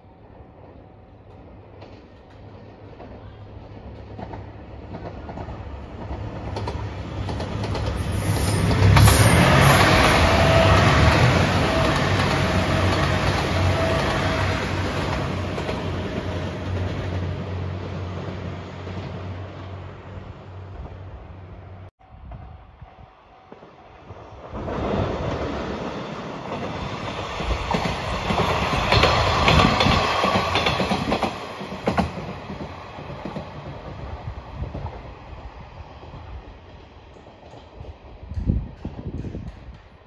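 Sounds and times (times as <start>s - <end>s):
train passing: 0.0s - 40.0s
wheels clacking over rail joints: 4.0s - 19.2s, 24.6s - 34.9s.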